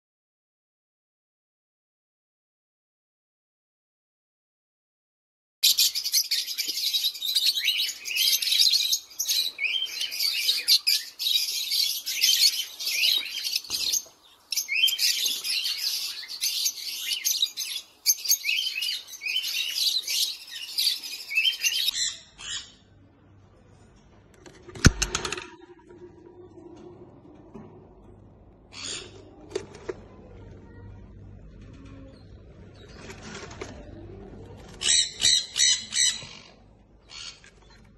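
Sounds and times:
lovebirds chirping: 5.6s - 23.1s.

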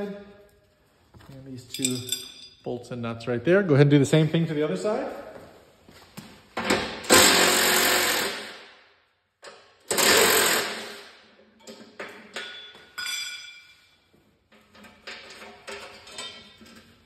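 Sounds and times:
light metal clinks: 1.6s - 2.6s
cordless power tool spinning nuts: 7.1s - 8.4s, 9.9s - 11.0s.

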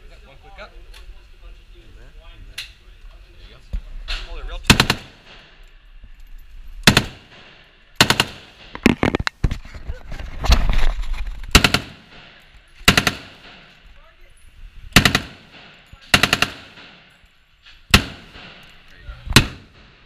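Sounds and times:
rifle automatic bursts: 4.6s - 5.4s, 6.8s - 7.4s, 8.0s - 8.8s, 11.5s - 12.1s, 12.8s - 13.7s, 14.9s - 17.2s.

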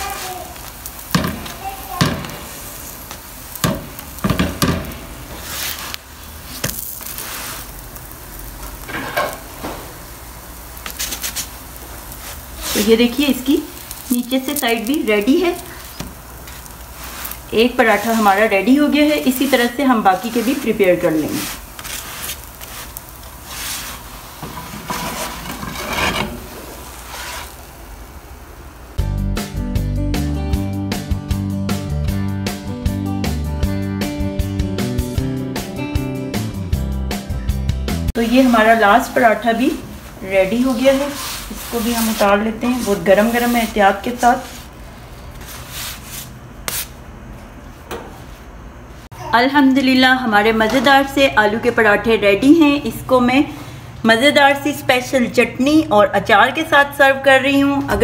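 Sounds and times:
spatula scraping on griddle: 0.0s - 9.6s, 10.8s - 27.7s, 38.2s - 47.0s
flatbread sizzling on a pan: 0.0s - 29.0s, 38.1s - 47.0s
spatula tapping and scraping pan: 1.1s - 2.4s, 3.6s - 5.0s
guitar music: 29.0s - 38.1s.

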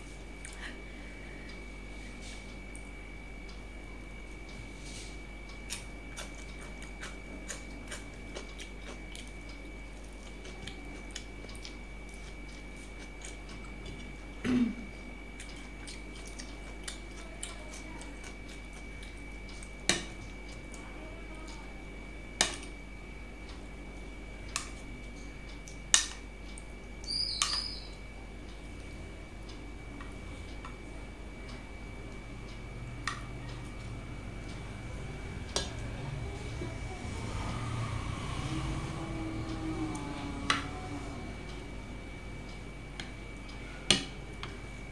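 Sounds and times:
faint high whine: 27.0s - 44.9s.

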